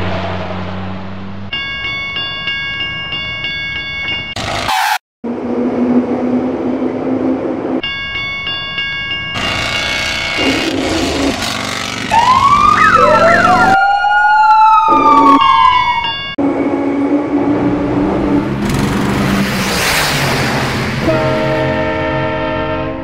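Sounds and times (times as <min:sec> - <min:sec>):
vehicle noise rumble: 0:00.0 - 0:02.0
police siren wailing: 0:12.0 - 0:16.8.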